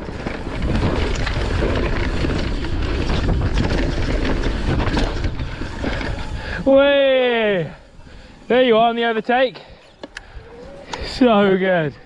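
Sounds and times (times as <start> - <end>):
wind buffeting microphone: 0.0 - 8.7
tyre noise on dirt: 0.0 - 9.0
bike rattling: 0.0 - 12.0.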